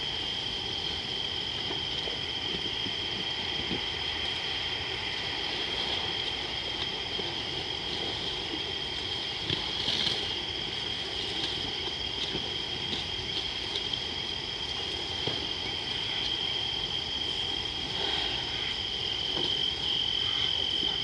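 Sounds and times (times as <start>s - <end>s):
night insects trilling: 0.0s - 21.0s.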